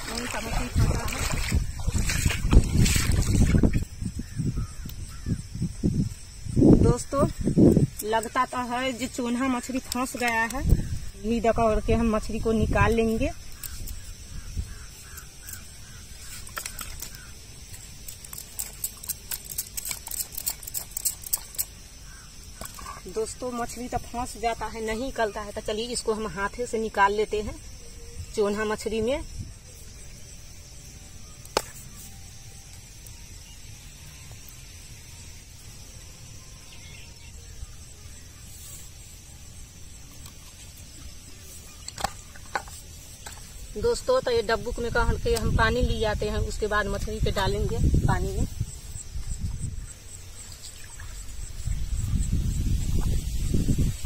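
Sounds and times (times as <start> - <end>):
fish trap net clicking and rustling: 16.3 - 21.8.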